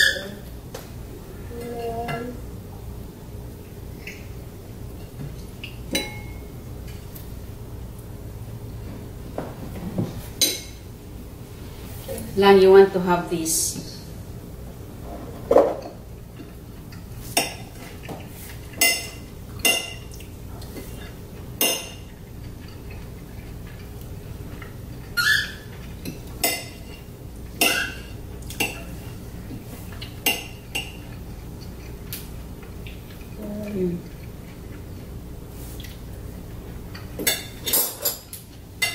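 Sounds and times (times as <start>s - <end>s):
cutlery clinking on plates: 5.0s - 7.1s, 15.5s - 20.2s, 21.6s - 23.1s, 25.6s - 27.0s, 27.6s - 29.0s, 36.9s - 38.9s.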